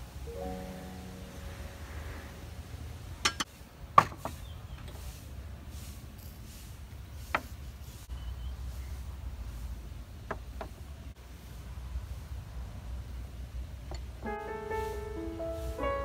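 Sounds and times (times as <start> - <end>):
low background rumble: 0.0 - 3.5
utensils knocking on bowls: 3.2 - 3.5.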